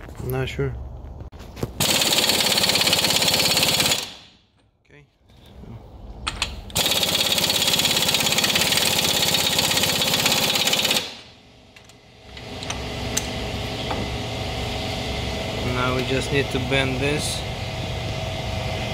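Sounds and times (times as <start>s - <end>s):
pneumatic impact wrench hammering: 1.8s - 4.4s, 6.3s - 14.1s
mechanical hum: 3.5s - 8.0s, 11.0s - 18.9s.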